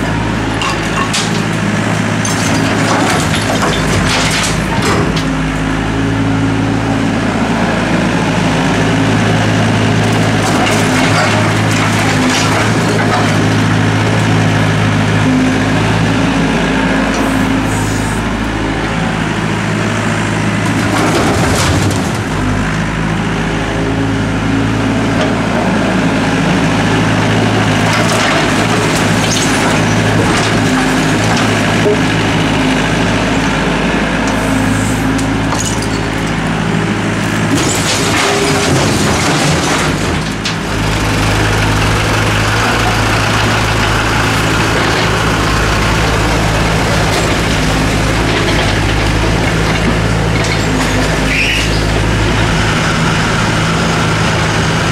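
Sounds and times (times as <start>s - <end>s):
diesel excavator engine: 0.0s - 54.9s
rubble clattering: 0.6s - 5.3s, 10.1s - 13.6s, 37.3s - 41.5s.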